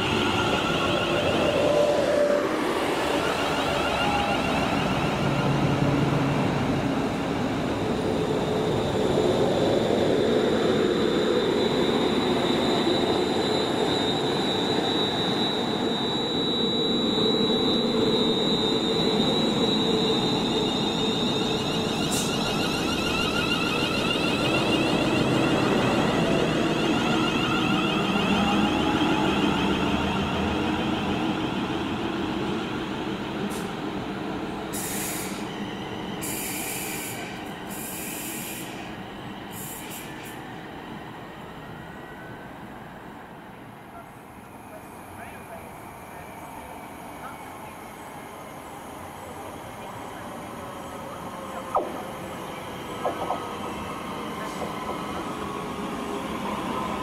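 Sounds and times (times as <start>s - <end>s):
electric train whine: 0.0s - 57.0s.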